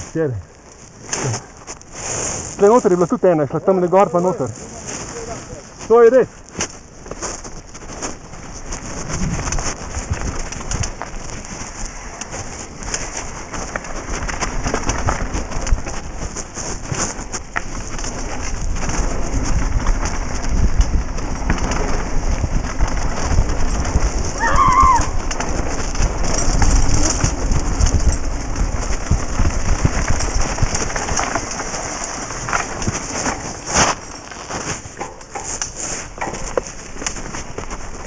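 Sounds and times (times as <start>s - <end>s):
bicycle tyres on gravel: 0.0s - 38.0s
bike rattles and knocks: 0.1s - 38.0s
wind buffeting microphone: 4.7s - 33.6s.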